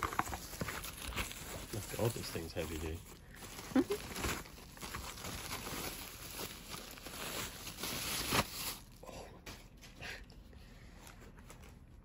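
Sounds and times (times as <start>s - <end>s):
plastic wrap crinkling: 0.0s - 9.0s.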